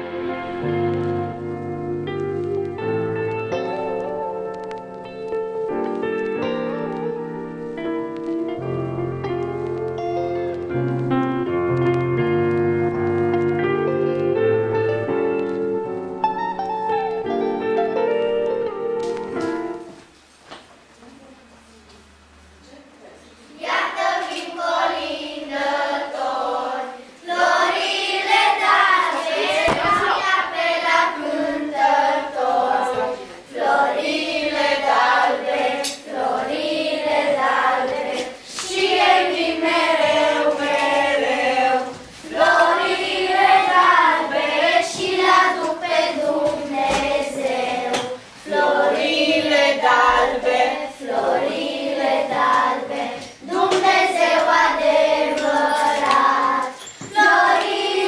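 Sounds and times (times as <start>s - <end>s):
children singing a carol: 23.6s - 58.0s.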